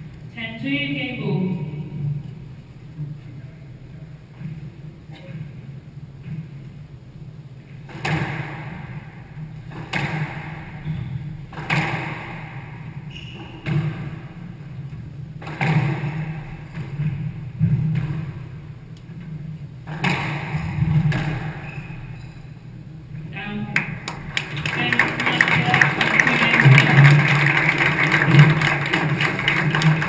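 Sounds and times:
steady low hum: 0:00.0 - 0:30.0
squash ball cracks: 0:07.8 - 0:10.8, 0:11.5 - 0:12.8, 0:15.4 - 0:17.0, 0:19.8 - 0:21.6.

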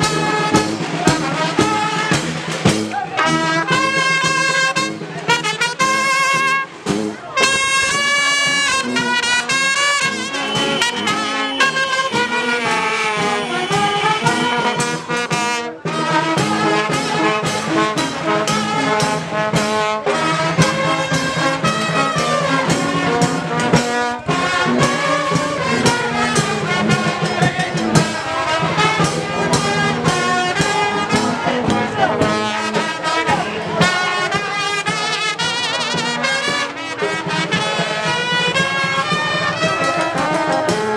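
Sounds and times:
brass marching band: 0:00.0 - 0:40.9
sharp percussive strokes: 0:09.7 - 0:35.1.

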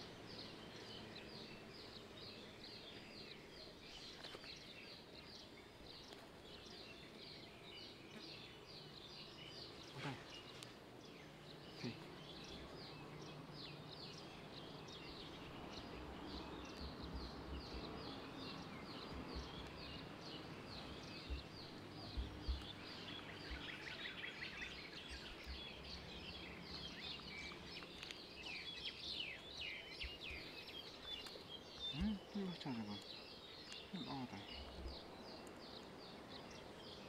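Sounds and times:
birds chirping: 0:00.0 - 0:37.0
dull low thumps: 0:20.7 - 0:23.9.

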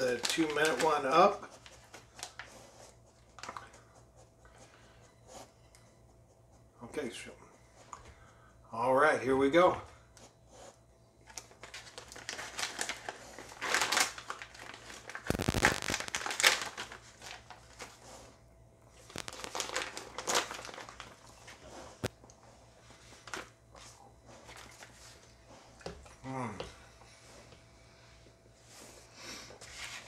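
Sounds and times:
plastic pouch crinkling: 0:00.0 - 0:02.5, 0:11.3 - 0:18.0, 0:19.0 - 0:21.4.

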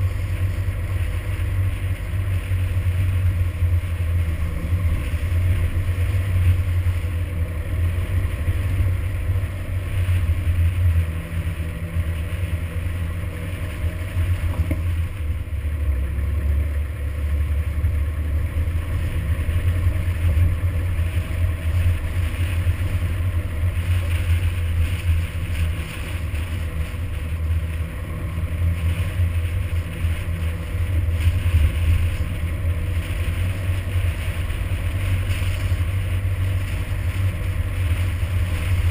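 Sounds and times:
tyres on gravel: 0:00.0 - 0:38.9
vehicle engine and road rumble: 0:00.0 - 0:38.9.

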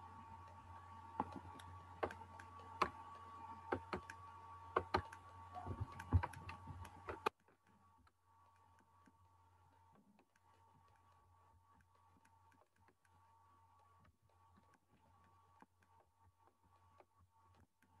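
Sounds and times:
electrical hum: 0:00.0 - 0:17.6
computer clicking and tapping: 0:01.2 - 0:09.2.

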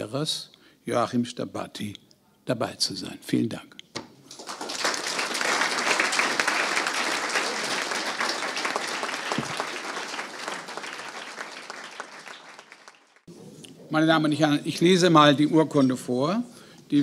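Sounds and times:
audience applauding: 0:04.3 - 0:13.3.

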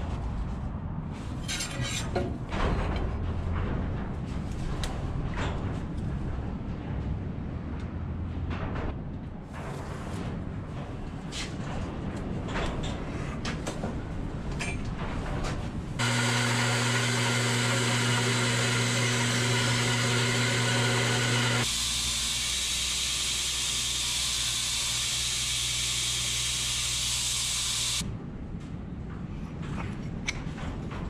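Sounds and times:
bandsaw cutting wood: 0:16.0 - 0:28.0
belt grinder hissing: 0:16.0 - 0:28.0.

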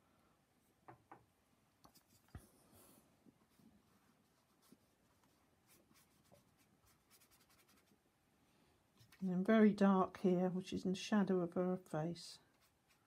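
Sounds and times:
paintbrush dabbing on paper: 0:03.5 - 0:08.0, 0:12.4 - 0:13.0.

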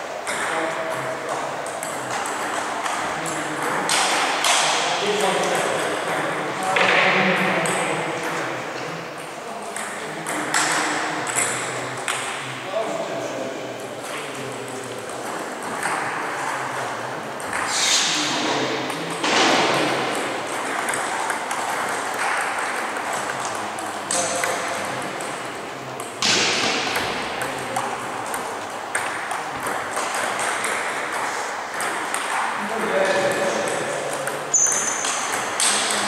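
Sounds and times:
table tennis ball clicking: 0:19.8 - 0:32.9.

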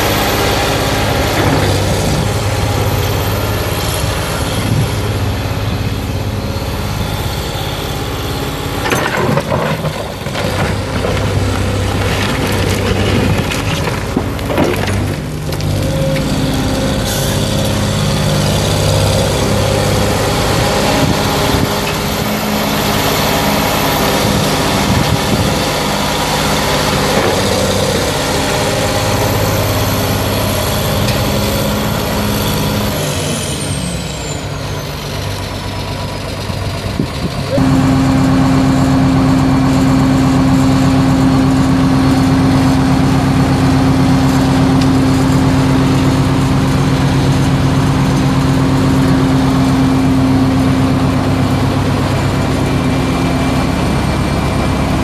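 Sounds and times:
diesel excavator engine running: 0:00.0 - 0:55.0
low engine drone: 0:00.0 - 0:55.0
engine falling whine: 0:36.8 - 0:55.0.

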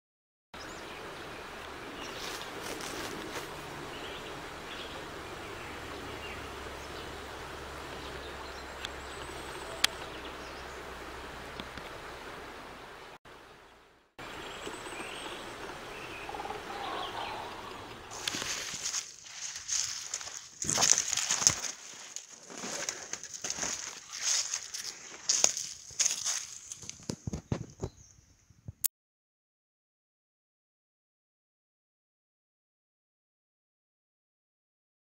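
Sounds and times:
woodland ambience hiss: 0:00.6 - 0:28.1
faint high bird calls: 0:07.9 - 0:10.9, 0:14.2 - 0:18.5.

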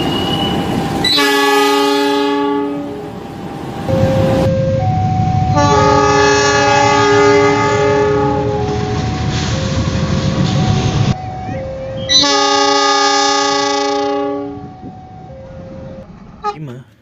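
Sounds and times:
locomotive horn blasts: 0:01.0 - 0:03.0, 0:05.5 - 0:09.0, 0:11.5 - 0:14.9.

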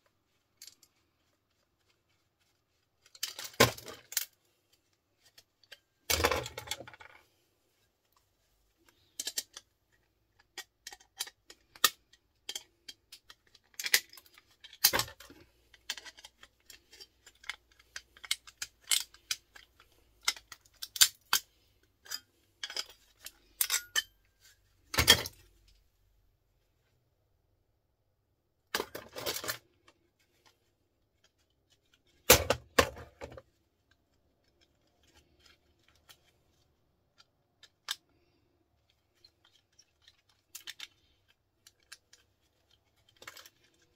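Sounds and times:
plastic parts snapping and clattering: 0:03.0 - 0:04.4, 0:05.2 - 0:07.2, 0:08.9 - 0:25.5, 0:28.7 - 0:30.5, 0:31.2 - 0:33.5, 0:37.1 - 0:43.9.

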